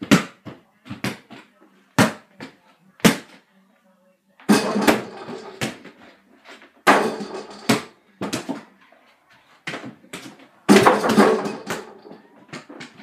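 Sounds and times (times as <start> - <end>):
ball bouncing on floor: 0.0 - 3.4, 9.6 - 13.0
hands hitting hoop rattling: 4.5 - 6.0, 6.9 - 8.6, 10.2 - 13.0.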